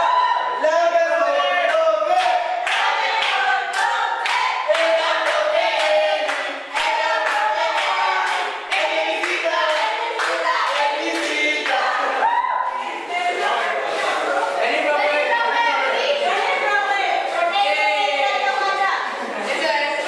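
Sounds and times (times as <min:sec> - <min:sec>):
young voices singing together: 0:00.0 - 0:20.0
hand-clapping: 0:01.7 - 0:12.0.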